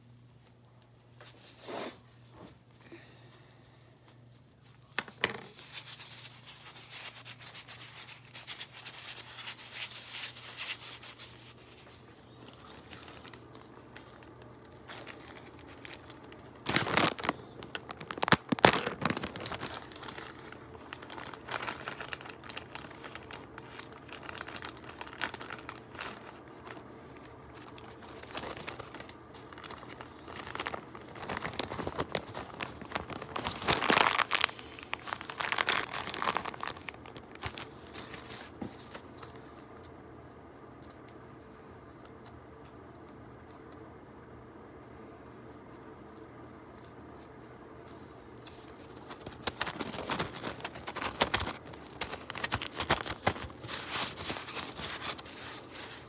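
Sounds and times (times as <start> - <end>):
plastic bag crinkling: 4.3 - 39.9, 46.0 - 56.0.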